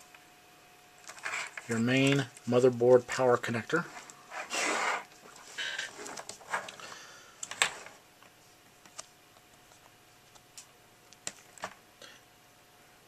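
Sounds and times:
cable bundle rustling: 1.0 - 8.0.

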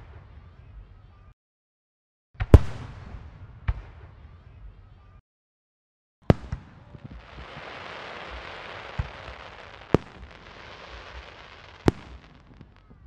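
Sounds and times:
fireworks bangs: 6.3 - 13.0
fireworks crackling: 6.8 - 13.0.

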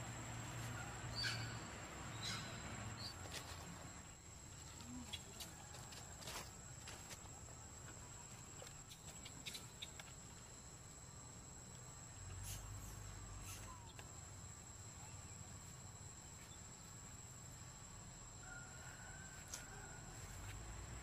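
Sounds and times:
high-pitched insect drone: 8.0 - 20.8.

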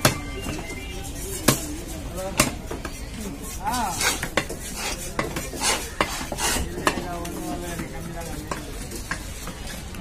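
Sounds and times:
knife chopping fish on wood block: 2.3 - 2.9, 4.0 - 7.0.

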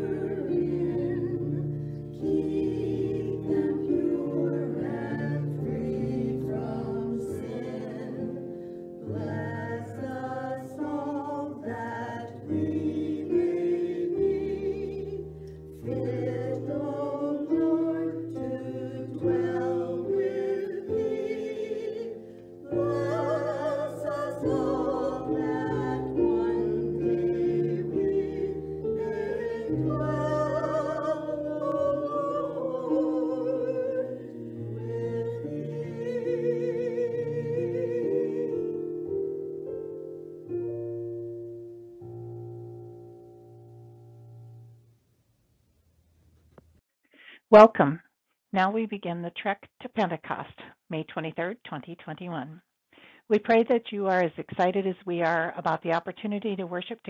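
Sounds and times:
small vocal group singing: 0.0 - 39.2.

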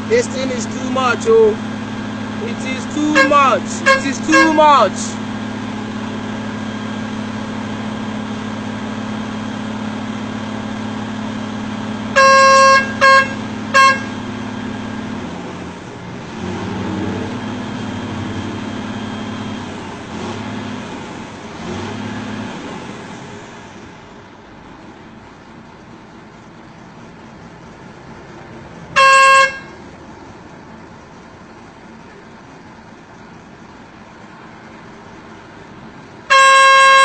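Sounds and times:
engine hum: 0.0 - 37.0
road traffic: 0.0 - 37.0
vehicle horn blasts and toots: 2.5 - 5.1, 12.1 - 14.3, 28.9 - 29.8, 36.3 - 37.0.

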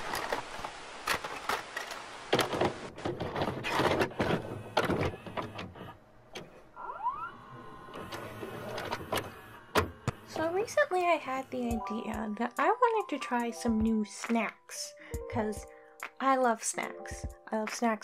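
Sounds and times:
tape hiss: 0.0 - 2.9
vcr clicks and clunks: 0.0 - 6.6, 7.8 - 10.4
motor whirring: 4.1 - 10.6
rising tones: 6.8 - 11.6.

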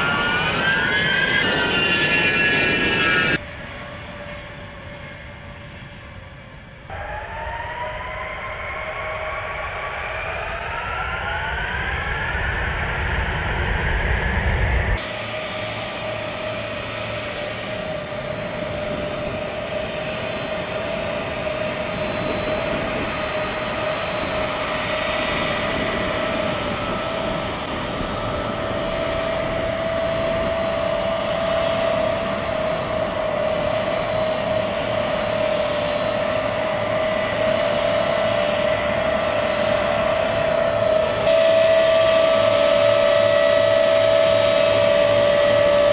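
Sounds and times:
jet engines whining: 0.0 - 45.9.

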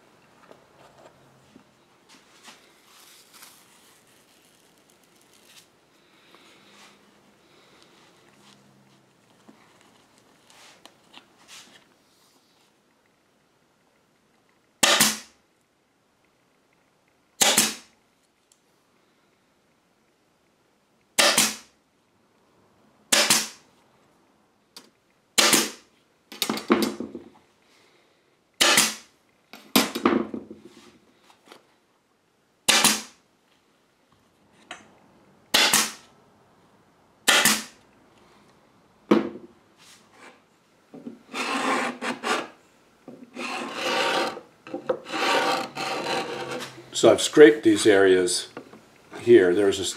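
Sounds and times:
hand scraper rasping on wood: 41.3 - 42.6, 43.3 - 46.8.

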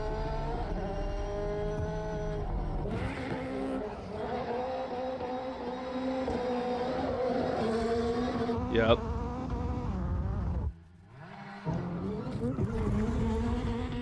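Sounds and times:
car engine at high revs: 0.0 - 14.0.

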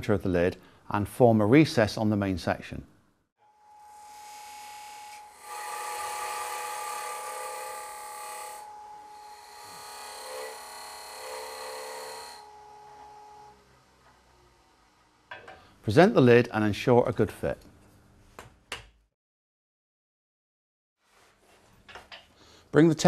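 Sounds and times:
wood lathe whining: 3.5 - 14.7
cutter cutting wood: 3.7 - 13.6.

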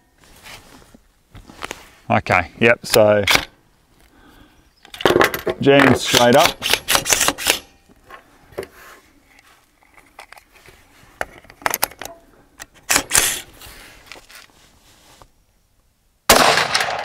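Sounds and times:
rifle clicks and clatter: 4.9 - 7.7, 11.2 - 13.4.

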